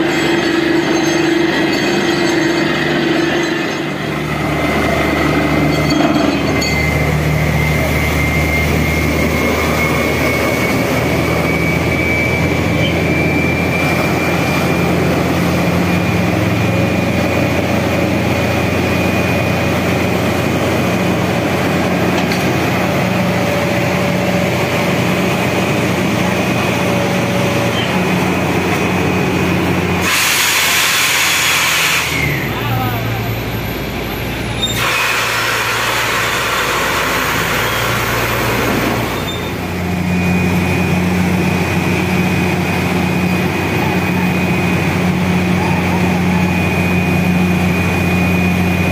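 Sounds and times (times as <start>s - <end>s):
drilling rig engine drone: 0.0s - 48.9s
loud hiss of air: 30.0s - 32.5s, 34.7s - 39.2s.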